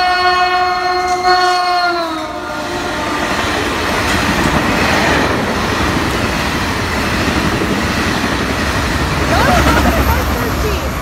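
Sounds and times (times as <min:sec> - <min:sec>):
train horn: 0:00.0 - 0:03.9
train wheels rumbling on rails: 0:02.0 - 0:11.0.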